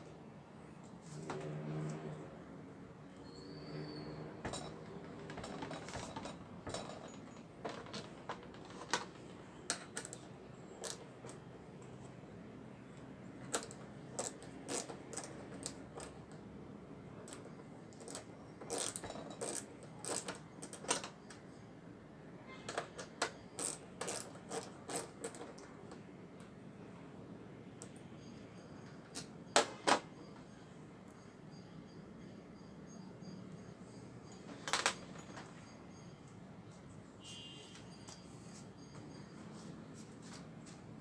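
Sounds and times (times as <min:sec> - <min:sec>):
screws and tools clinking on metal: 0:03.7 - 0:11.5, 0:13.4 - 0:16.4, 0:17.2 - 0:21.6, 0:22.7 - 0:25.8, 0:32.9 - 0:36.4
ratcheting wrench clicking: 0:10.8 - 0:11.0, 0:13.5 - 0:16.2, 0:17.3 - 0:21.1, 0:23.3 - 0:25.4.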